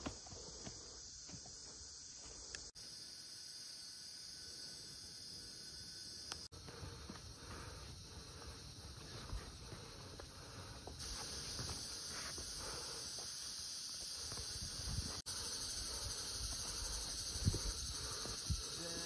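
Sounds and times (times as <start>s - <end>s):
insect chorus hissing: 0.0s - 19.0s
footsteps on dirt trail: 6.5s - 15.2s.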